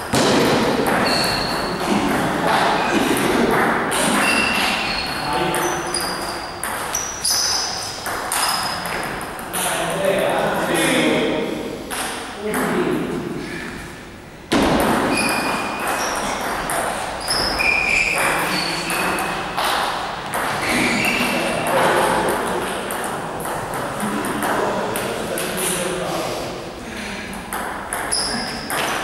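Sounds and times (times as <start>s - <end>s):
short high squeaks: 1.0s - 1.7s, 4.2s - 9.0s, 15.1s - 16.4s, 17.2s - 19.4s, 20.6s - 21.4s, 28.1s - 28.6s.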